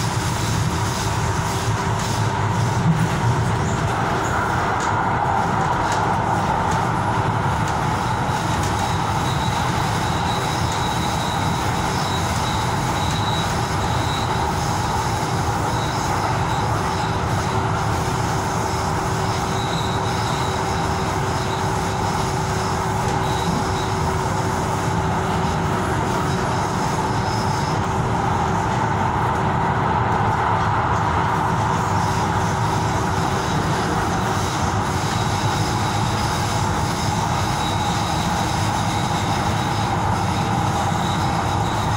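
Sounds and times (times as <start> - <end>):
train motor hum: 0.0 - 41.9
train wheels rumbling on rail: 0.0 - 41.9
faint high wheel squeal: 7.7 - 28.6, 31.7 - 41.9.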